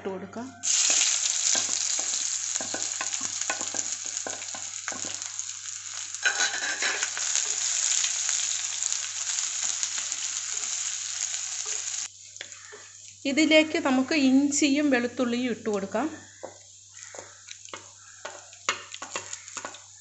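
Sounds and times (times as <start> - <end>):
food sizzling in hot oil: 0.6 - 20.0
wooden spatula scraping a pot: 6.3 - 7.1.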